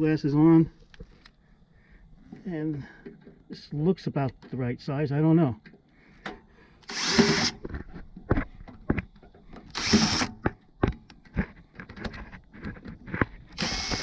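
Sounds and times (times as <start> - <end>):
cordless drill running: 6.8 - 7.6, 9.7 - 10.4, 13.6 - 14.0.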